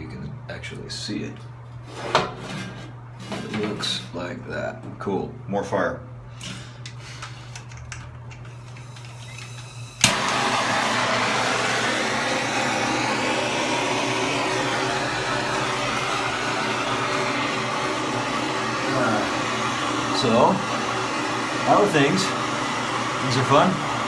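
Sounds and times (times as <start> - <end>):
blowtorch ignition click: 6.4 - 18.4
blowtorch flame hissing: 8.5 - 24.0.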